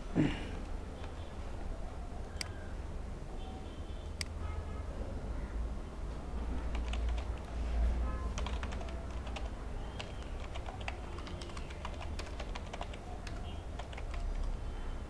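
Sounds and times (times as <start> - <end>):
keyboard typing clicks: 6.7 - 7.5, 8.3 - 14.6.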